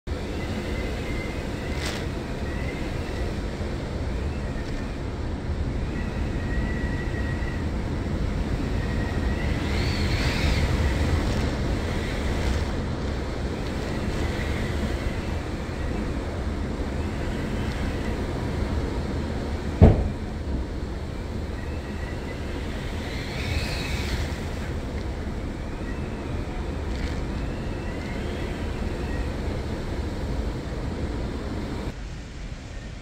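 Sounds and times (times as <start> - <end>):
hurricane-force wind: 0.1 - 33.0
thin wind whistle: 0.1 - 33.0
wind buffeting microphone: 0.1 - 33.0
driving rain: 6.2 - 32.0.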